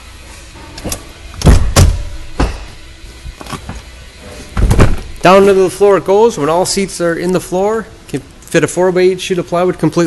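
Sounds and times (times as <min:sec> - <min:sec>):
car seat clunking and knocking: 0:04.6 - 0:05.1.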